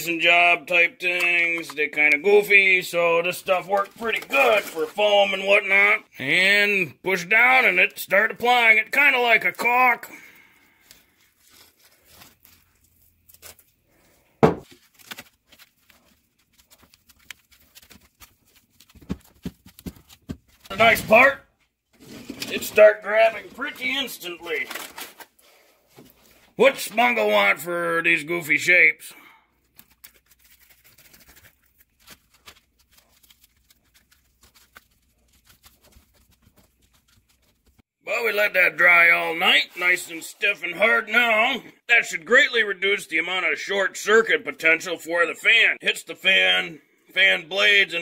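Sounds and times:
hands handling foam pieces: 0:03.4 - 0:05.1, 0:10.8 - 0:21.3, 0:29.6 - 0:37.8.

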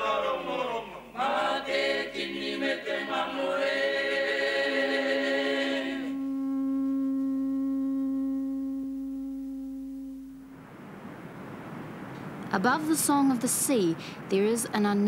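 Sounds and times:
voices chanting: 0:00.0 - 0:06.6.

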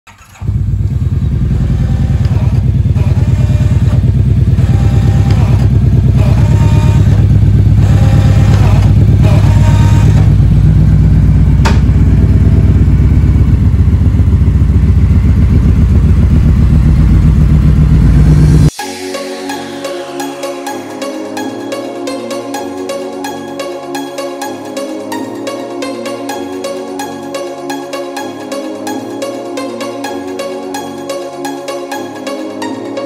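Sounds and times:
motorcycle engine running: 0:00.1 - 0:18.7.

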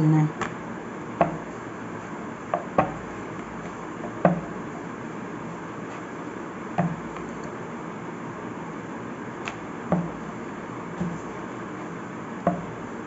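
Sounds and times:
rolling pin rolling dough: 0:00.3 - 0:07.6, 0:09.2 - 0:13.0
short wooden knocks: 0:04.0 - 0:04.6, 0:09.5 - 0:10.2.

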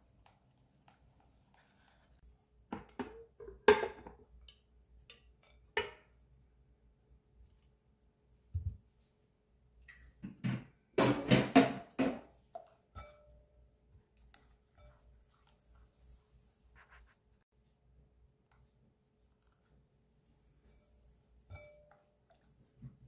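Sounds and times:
cookware knocks and clinks: 0:02.7 - 0:04.2, 0:05.2 - 0:06.1, 0:10.3 - 0:12.3
spatula stirring in glass bowl: 0:20.3 - 0:22.5.

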